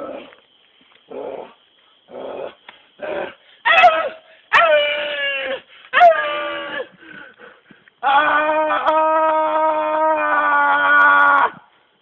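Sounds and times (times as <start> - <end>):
man howling: 8.0 - 11.5.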